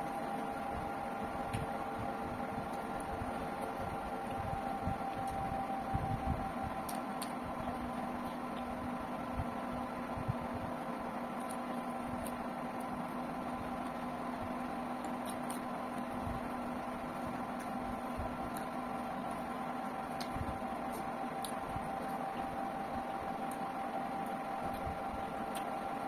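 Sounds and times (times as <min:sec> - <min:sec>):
steady mechanical hum: 0:00.0 - 0:26.0.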